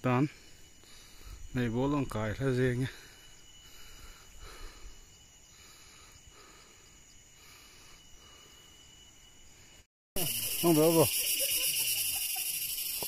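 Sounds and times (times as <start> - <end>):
high-pitched insect drone: 0.0 - 13.0
soft breath sounds: 2.9 - 8.9.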